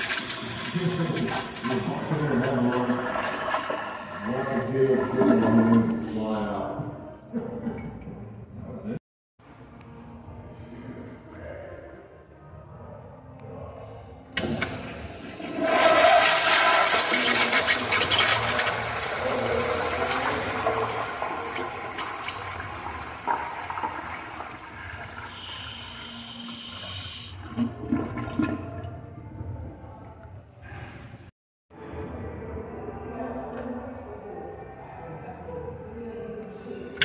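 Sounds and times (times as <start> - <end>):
flush valve shutting off: 0.0 - 6.4, 14.4 - 27.4
toilet flushing water rush: 0.0 - 6.6, 14.4 - 29.7.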